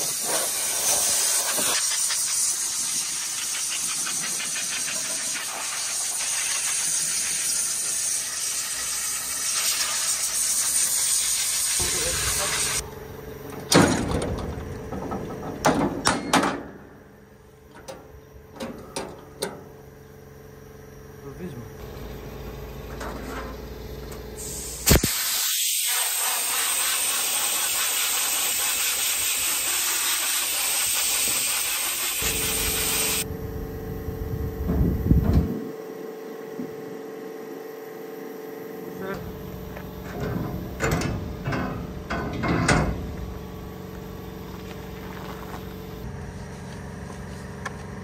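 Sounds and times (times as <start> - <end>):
compressed air blow gun bursts: 0.0 - 12.8, 24.3 - 33.3
steady low hum: 11.8 - 24.9, 32.2 - 48.0.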